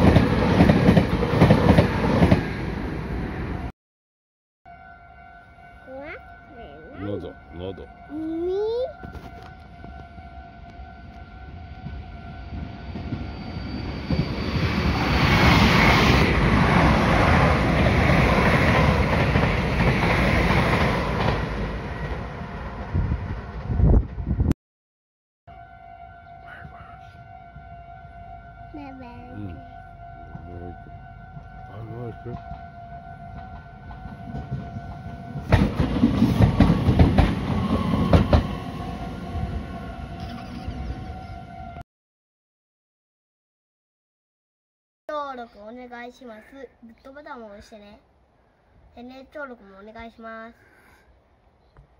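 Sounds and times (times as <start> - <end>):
level crossing warning bell: 4.7 - 14.3, 25.5 - 35.5
train wheels clattering over rails: 33.4 - 38.6.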